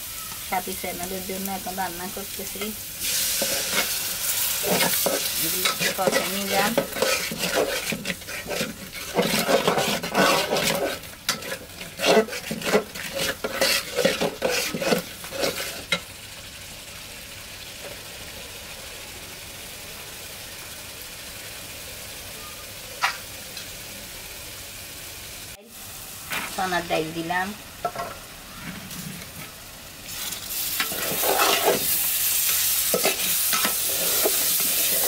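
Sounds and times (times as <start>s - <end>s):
food sizzling in a pot: 0.0s - 35.0s
metal spatula scraping a pot: 3.1s - 16.0s, 30.2s - 35.0s.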